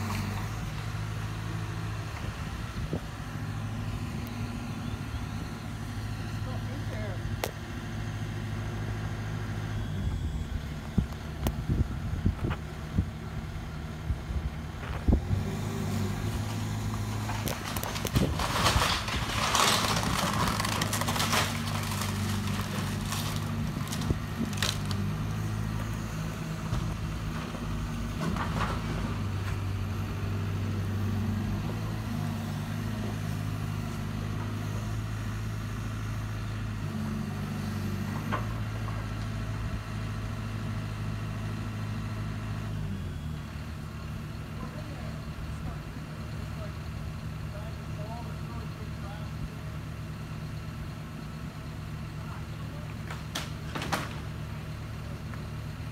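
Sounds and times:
diesel engine running: 0.0s - 55.9s
crunching and cracking debris: 16.3s - 25.4s.

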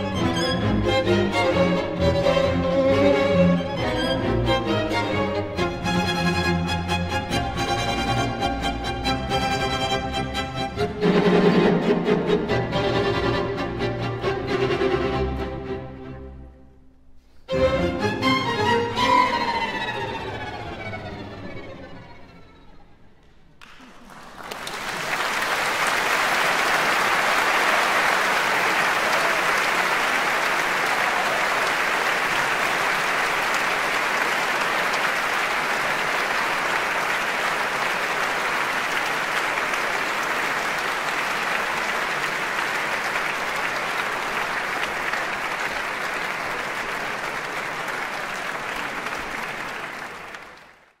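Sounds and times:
large audience applauding: 23.2s - 51.0s.

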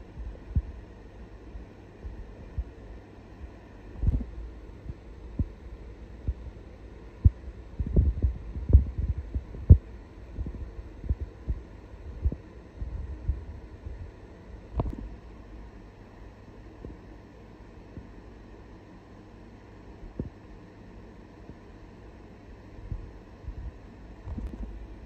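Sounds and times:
faint rumble: 0.0s - 17.1s, 22.5s - 25.0s.

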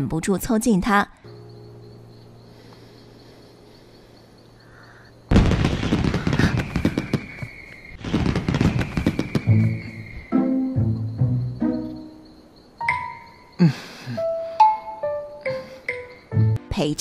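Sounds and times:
fireworks bursting and crackling: 5.3s - 10.2s.

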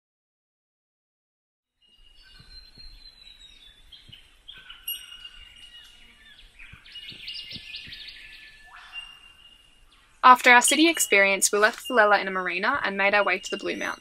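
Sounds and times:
birds calling and trilling: 1.8s - 14.0s
faint low thuds: 2.3s - 4.8s, 6.4s - 8.5s.

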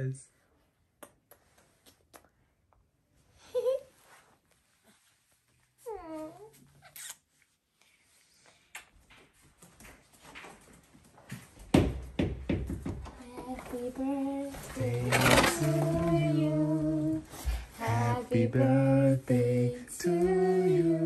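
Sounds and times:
balloons rustling: 13.4s - 20.9s
person humming: 14.8s - 21.0s.

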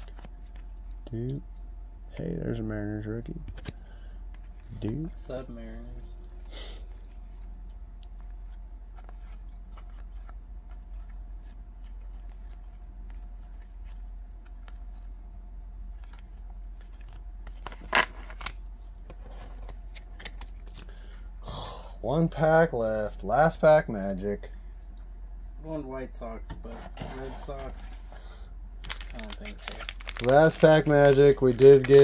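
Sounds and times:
cards sliding and ticking: 0.0s - 1.0s, 6.3s - 15.2s, 15.8s - 21.2s
steady low hum: 0.0s - 32.0s.

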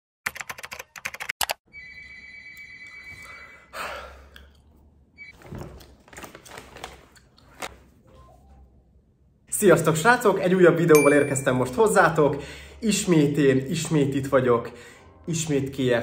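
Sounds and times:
steady high tone: 11.0s - 12.0s.

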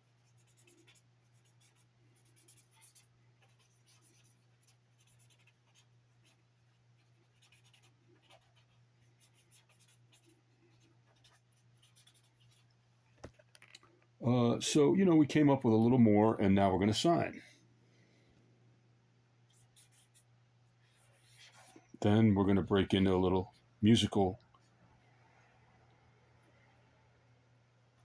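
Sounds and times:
low steady hum: 0.0s - 28.0s
pen scratching on paper: 0.2s - 6.4s, 7.0s - 12.7s, 19.5s - 20.2s.

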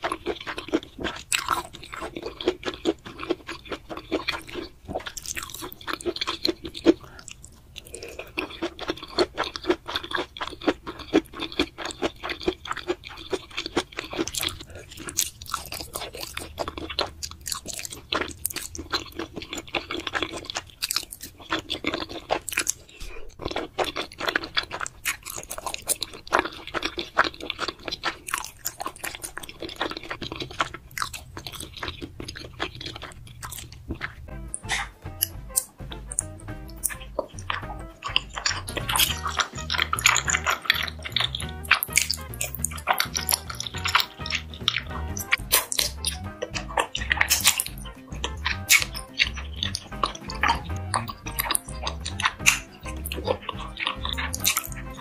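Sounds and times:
chewing and slurping noodles: 0.0s - 55.0s
wet mouth clicks: 0.0s - 55.0s.

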